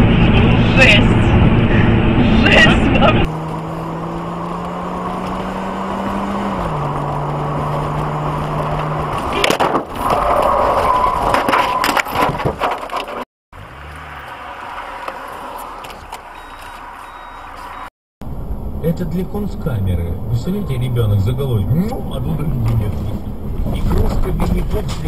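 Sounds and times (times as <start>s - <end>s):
car engine and road drone: 0.0s - 11.6s, 12.6s - 25.0s
crunching and scraping metal: 6.8s - 13.2s
car crash impact: 9.2s - 13.2s.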